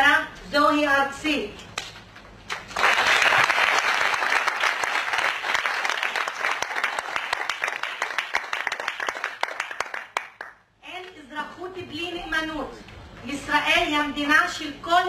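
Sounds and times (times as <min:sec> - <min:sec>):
audience applauding: 0:02.5 - 0:10.6.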